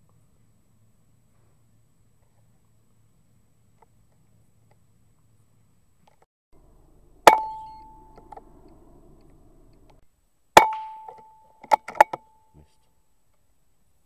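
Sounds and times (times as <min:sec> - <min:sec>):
air rifle shots with metallic ring: 0:07.2 - 0:08.5.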